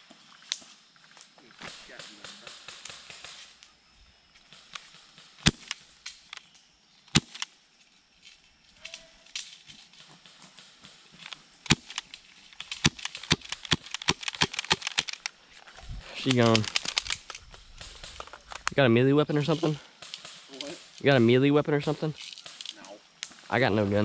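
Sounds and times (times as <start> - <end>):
airsoft gun cracks: 4.5 - 7.5, 10.8 - 15.3, 16.2 - 18.8, 20.0 - 21.0, 22.2 - 23.4.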